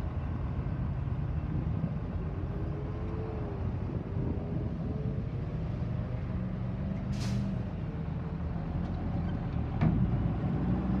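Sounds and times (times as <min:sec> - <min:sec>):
road traffic: 0:00.0 - 0:11.0
air-brake hiss: 0:07.1 - 0:07.6.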